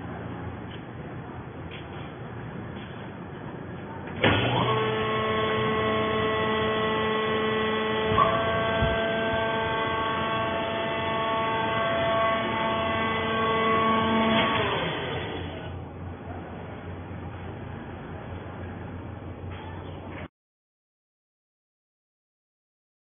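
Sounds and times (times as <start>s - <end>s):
hydraulic pump whine: 4.1s - 16.2s.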